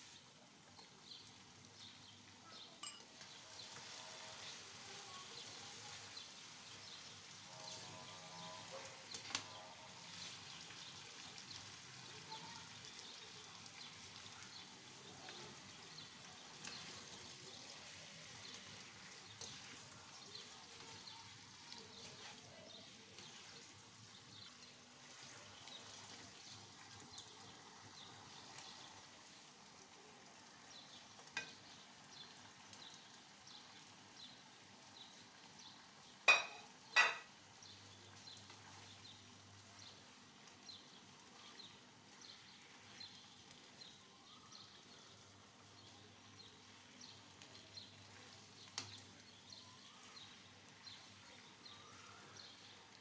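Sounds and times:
food sizzling in a wok: 0:00.0 - 0:53.0
spatula stirring and scraping: 0:02.7 - 0:12.0, 0:12.6 - 0:29.6, 0:37.3 - 0:44.0, 0:46.6 - 0:53.0.

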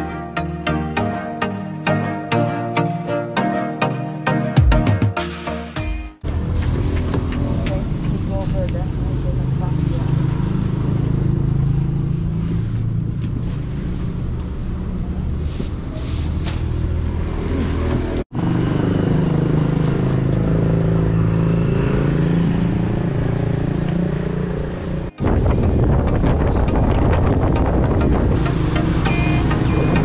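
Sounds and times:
vehicle engine drone: 0:06.2 - 0:30.0.

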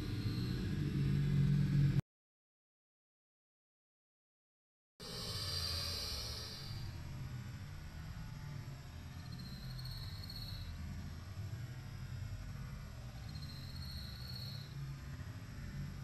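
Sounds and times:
high-pitched insect trills: 0:00.0 - 0:00.7, 0:05.0 - 0:07.0, 0:09.2 - 0:10.8, 0:13.2 - 0:14.8
low steady rumble: 0:00.0 - 0:02.0, 0:05.0 - 0:16.0.

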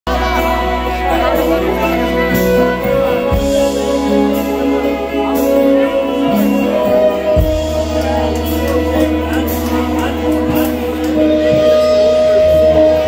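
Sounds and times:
bass line: 0:00.0 - 0:13.0
electric guitar: 0:00.0 - 0:13.0.

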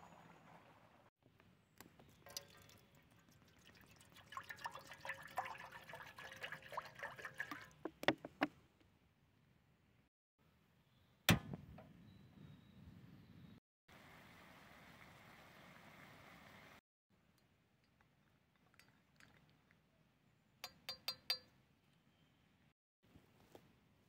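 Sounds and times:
water pouring into metal tin: 0:02.0 - 0:08.2.

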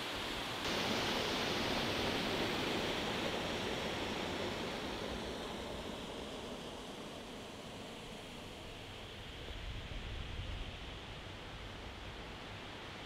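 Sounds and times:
stream running water: 0:00.0 - 0:09.6.

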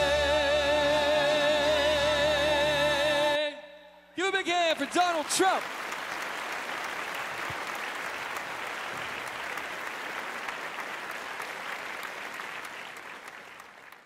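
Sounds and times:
large crowd applauding: 0:04.4 - 0:14.0.

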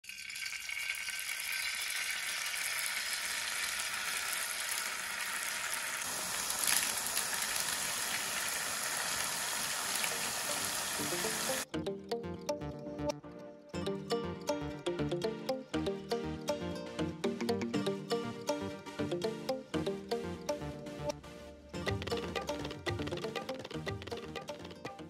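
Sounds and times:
batter sizzling in hot oil: 0:00.0 - 0:11.6
music: 0:11.0 - 0:25.0.

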